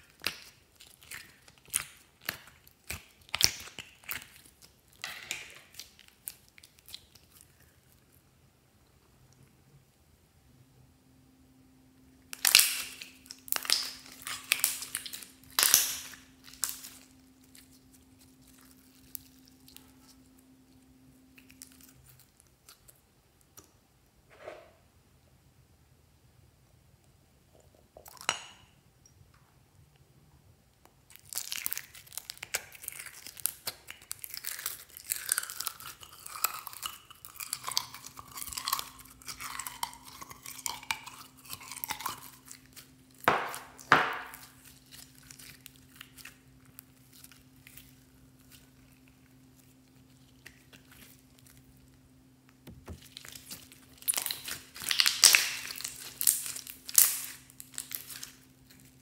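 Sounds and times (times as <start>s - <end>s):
slime crackling and popping: 0.0s - 7.9s, 12.3s - 23.6s, 31.0s - 59.0s
hands squishing slime: 0.0s - 8.0s, 12.3s - 20.3s, 31.1s - 51.9s, 52.6s - 59.0s.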